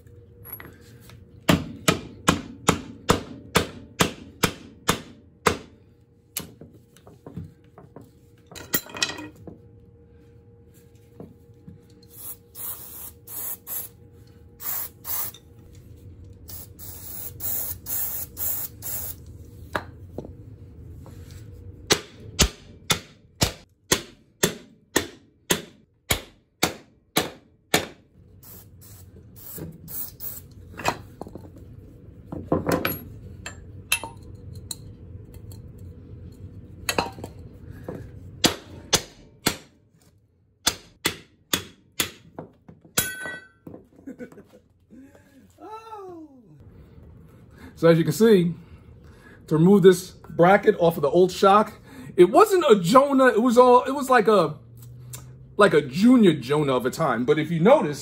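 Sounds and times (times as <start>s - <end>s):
aerosol spray hissing: 12.1s - 14.0s, 14.6s - 15.3s, 16.5s - 19.2s.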